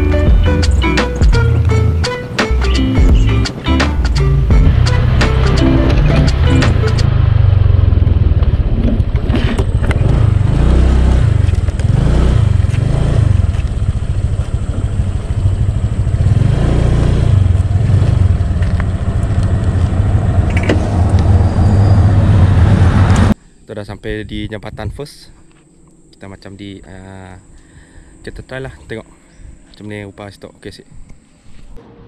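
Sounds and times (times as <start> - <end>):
motor scooter engine rumbling: 0.0 - 23.4.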